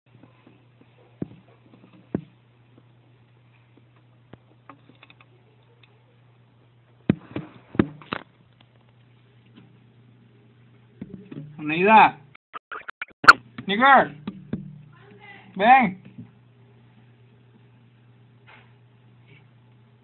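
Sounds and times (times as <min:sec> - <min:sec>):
steady low hum: 0:13.2 - 0:20.0.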